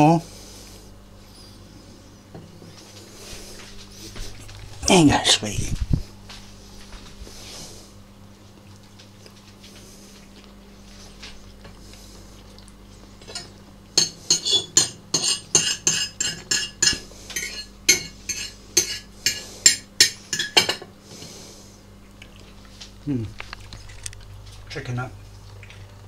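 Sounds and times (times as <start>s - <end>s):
cutlery clinking against a plate: 13.2s - 20.9s.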